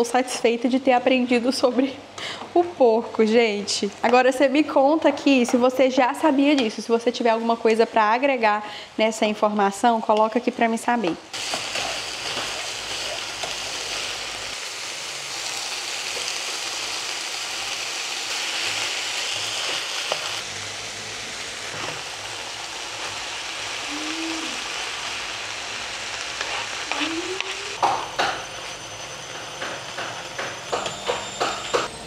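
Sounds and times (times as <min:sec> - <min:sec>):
meat and vegetables sizzling in pan: 0:11.4 - 0:27.8.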